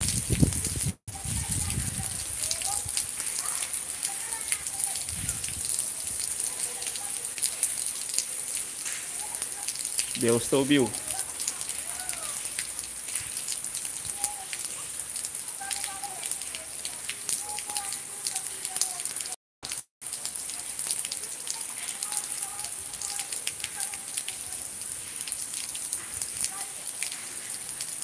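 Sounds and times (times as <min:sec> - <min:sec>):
steady rain falling: 0:00.0 - 0:28.0.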